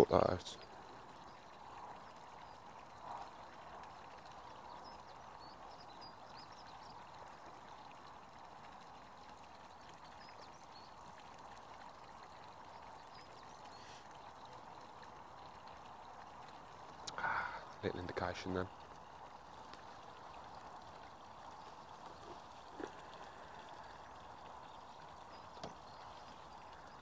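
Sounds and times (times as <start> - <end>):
steady rain falling: 14.6 - 27.0.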